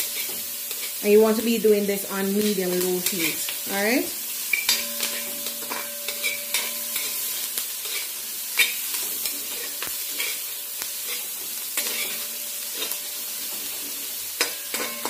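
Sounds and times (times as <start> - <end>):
onions sizzling in butter: 0.0 - 15.0
spoon scraping and tapping pot: 4.5 - 7.2, 14.4 - 15.0.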